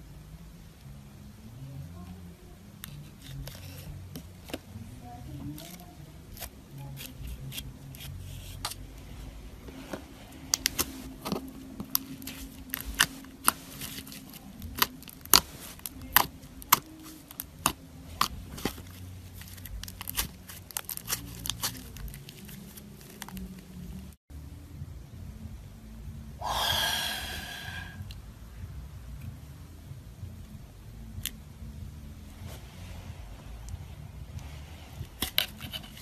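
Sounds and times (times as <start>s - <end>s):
slime clicking and crackling: 10.5s - 24.1s.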